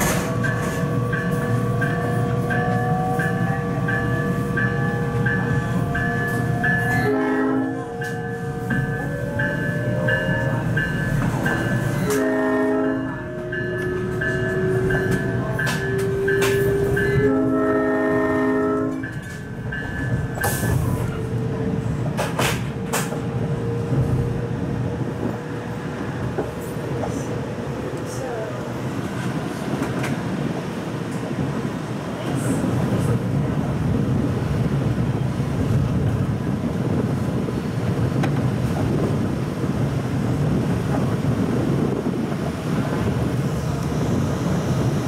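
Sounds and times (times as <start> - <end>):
train horn blasts: 0.0 - 10.4, 12.0 - 19.3
train cars rumbling on rails: 0.0 - 45.0.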